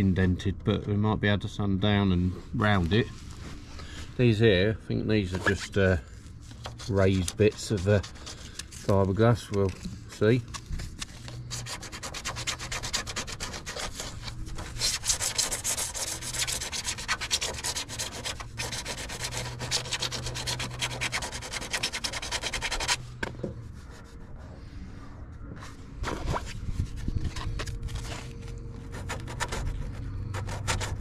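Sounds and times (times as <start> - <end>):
hand sanding fibreglass: 11.3 - 23.0, 28.9 - 31.0.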